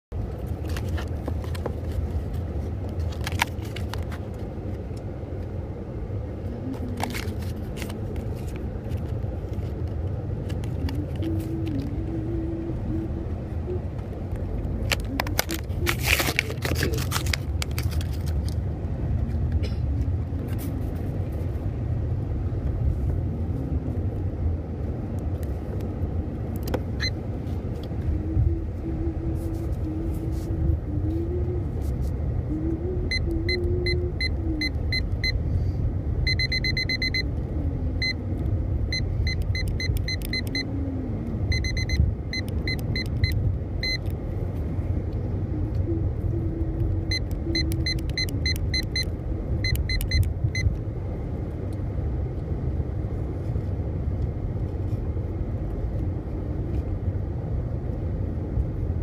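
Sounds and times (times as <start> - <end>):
vehicle cabin rumble: 0.1 - 59.0
plastic blister pack crinkling: 14.9 - 18.5.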